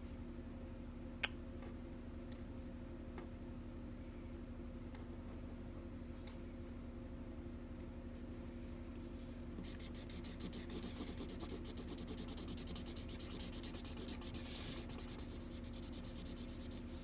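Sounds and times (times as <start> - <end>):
felt-tip marker scratching on paper: 9.6 - 16.9.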